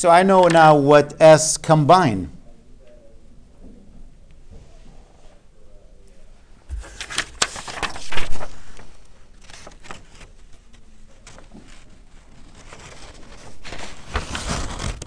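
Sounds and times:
paper rustling: 6.7 - 15.0.

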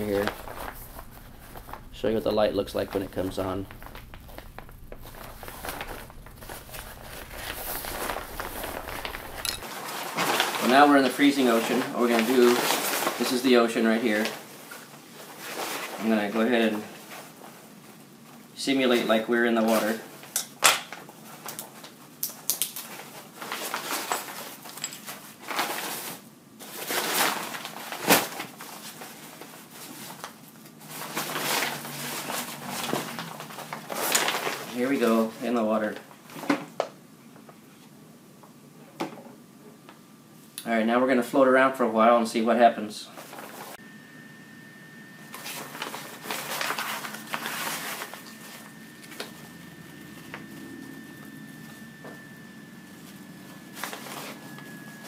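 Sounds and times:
faint high-pitched tone: 0.0 - 9.6, 43.8 - 55.0
fabric rustling and crinkling: 0.0 - 13.4, 45.4 - 50.0.

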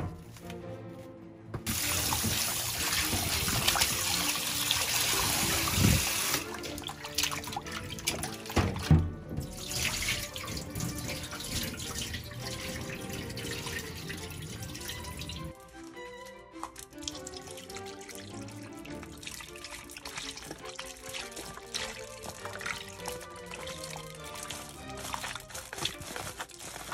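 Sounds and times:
hands kneading meat in water: 1.6 - 26.9
tap water running into sink: 1.6 - 26.9
thump: 8.6 - 9.5.

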